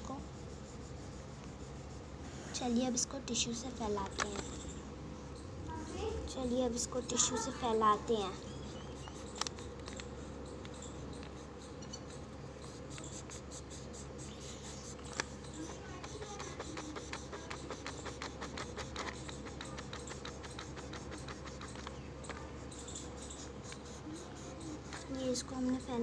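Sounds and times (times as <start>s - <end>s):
tissue rubbing on paper: 0.0s - 4.6s, 12.5s - 26.0s
low background hum: 0.0s - 26.0s.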